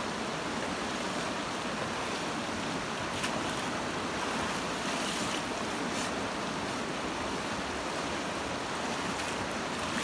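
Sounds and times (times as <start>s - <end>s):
stream rushing: 0.0s - 10.0s
water splashing: 8.6s - 10.0s.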